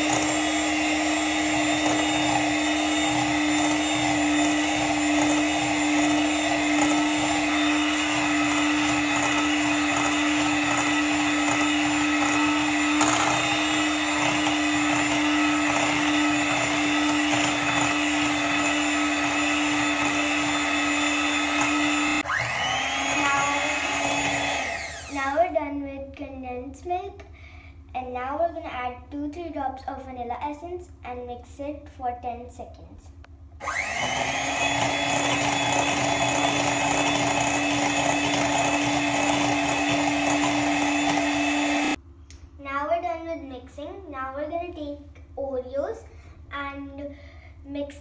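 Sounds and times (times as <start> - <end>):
electric hand mixer whining: 0.0 - 25.4, 33.6 - 42.0.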